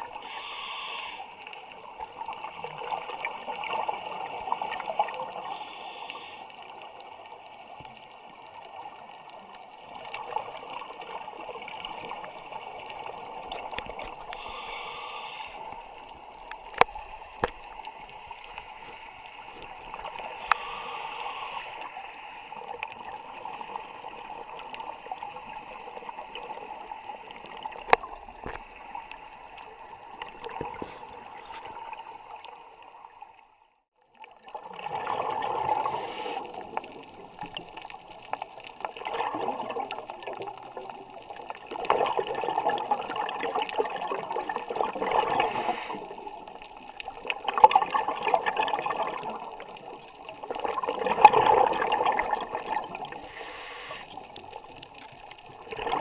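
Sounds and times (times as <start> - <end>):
regulator hissing inhales: 0.2 - 1.3, 5.5 - 6.5, 14.4 - 15.7, 20.4 - 21.8, 45.4 - 46.0, 53.3 - 54.1
gurgling exhaled bubbles: 38.9 - 53.4, 54.1 - 56.0.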